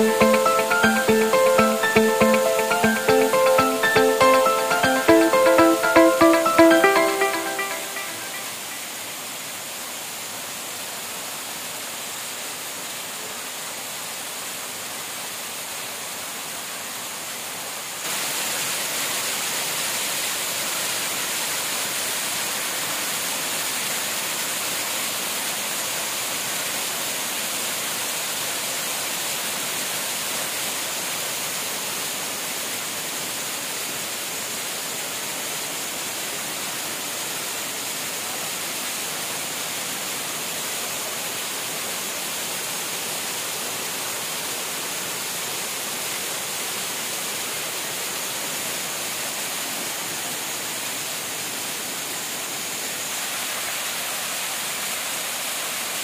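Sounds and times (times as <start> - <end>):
waterfall rushing over rocks: 0.3 - 56.0.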